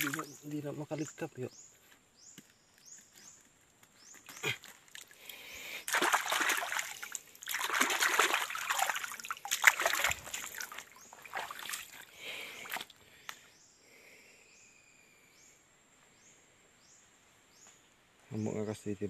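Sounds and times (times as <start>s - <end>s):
hands splashing in shallow water: 0.0s - 0.3s, 5.8s - 12.9s.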